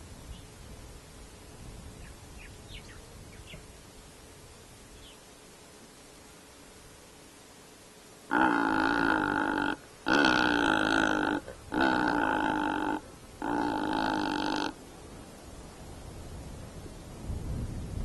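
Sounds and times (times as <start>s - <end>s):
bird giving deep calls: 8.3s - 14.8s.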